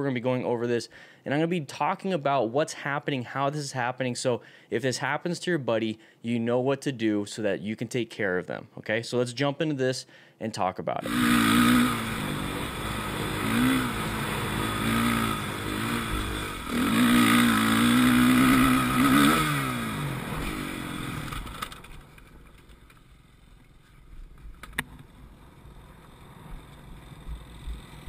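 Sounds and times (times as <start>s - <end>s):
dirt bike engine revving: 11.0s - 22.0s.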